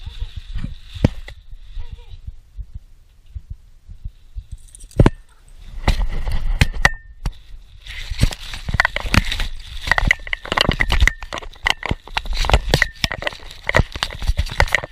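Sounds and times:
thumps and rubbing on camera: 0:00.0 - 0:02.3, 0:03.2 - 0:14.9
bubble wrap crinkling: 0:07.3 - 0:14.9
bubble wrap snapping: 0:07.8 - 0:14.9.

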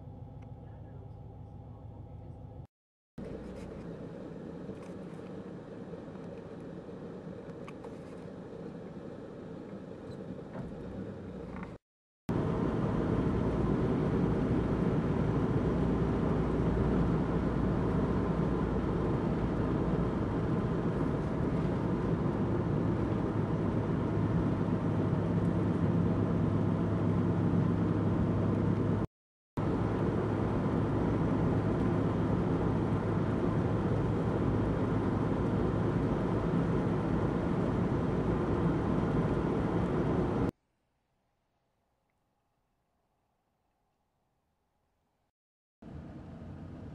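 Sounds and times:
low steady hum: 0:00.0 - 0:11.7
car road and engine noise: 0:00.0 - 0:40.6, 0:45.8 - 0:46.9.

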